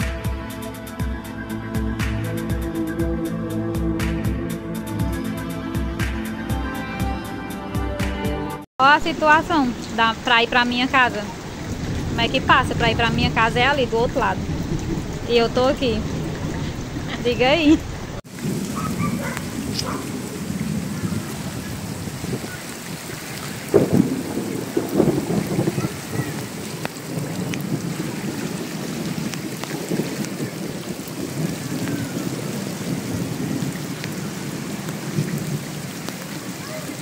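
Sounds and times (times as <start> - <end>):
floodwater rushing through street: 8.8 - 37.0
heavy rain: 8.9 - 37.0.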